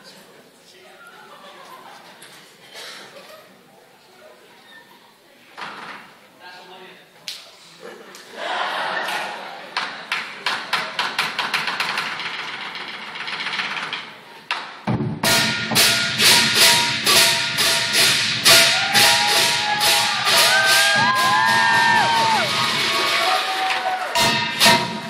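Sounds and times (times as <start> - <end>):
drum beating: 14.8 - 25.0
cymbals clashing: 15.2 - 25.0
voices whooping: 18.7 - 24.2.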